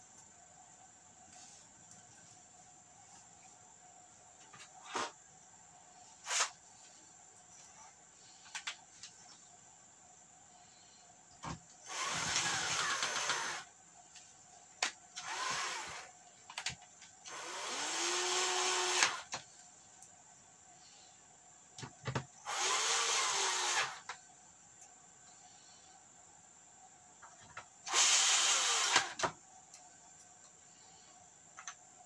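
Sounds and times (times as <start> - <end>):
drill motor whirring: 11.9 - 13.7, 15.2 - 16.1, 17.3 - 19.4, 22.5 - 24.1, 27.9 - 29.3.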